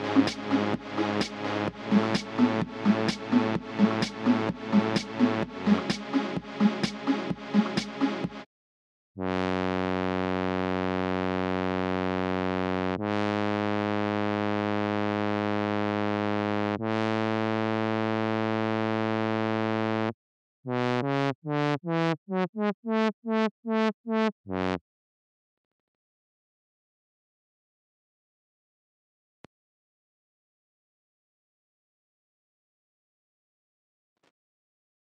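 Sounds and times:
synth notes: 0.0s - 8.4s.

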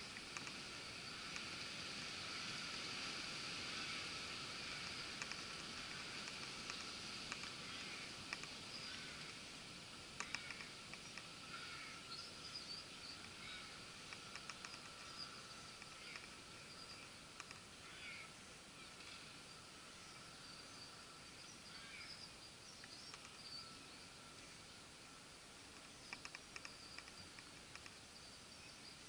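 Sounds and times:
sharp soft clicks: 0.1s - 0.6s, 4.8s - 8.6s, 10.2s - 11.3s, 14.0s - 16.4s, 17.0s - 17.7s, 22.8s - 23.5s, 25.7s - 28.0s
distant birds chirping: 3.7s - 29.0s.

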